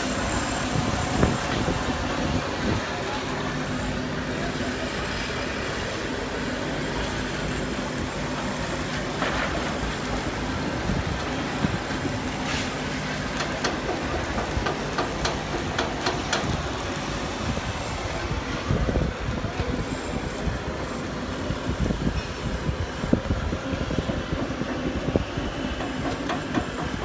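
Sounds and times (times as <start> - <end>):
low machinery drone: 0.0 - 27.0.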